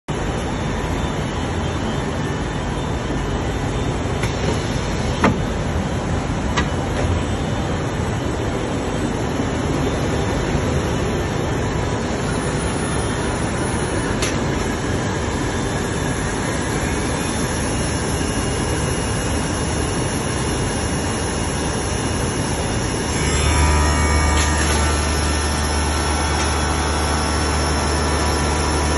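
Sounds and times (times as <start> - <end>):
workshop machinery hum: 0.1 - 28.9.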